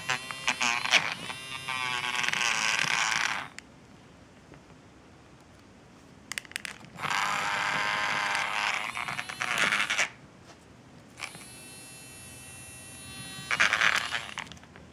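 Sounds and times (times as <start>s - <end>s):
toy motor whirring: 0.0s - 3.6s, 7.0s - 10.2s, 11.2s - 14.6s.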